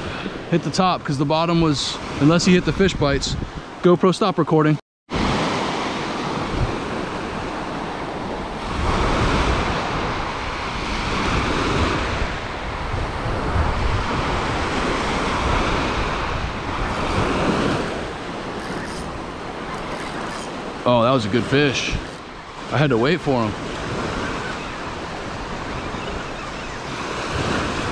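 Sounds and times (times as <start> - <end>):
wind buffeting microphone: 2.4 - 3.8, 6.2 - 22.7
surf breaking on shore: 5.1 - 27.9.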